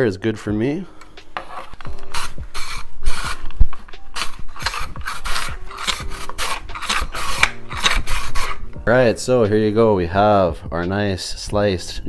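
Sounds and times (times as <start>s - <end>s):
potato rasping on mandoline blade: 1.4s - 8.8s.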